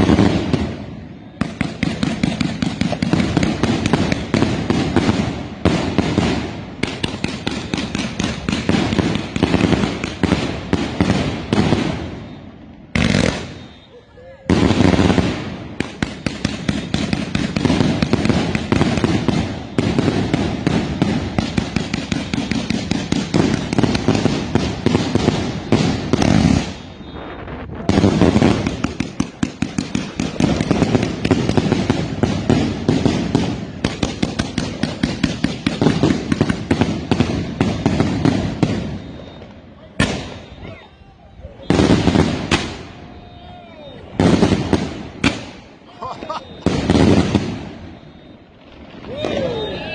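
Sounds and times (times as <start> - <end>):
fireworks popping and crackling: 0.0 - 49.9.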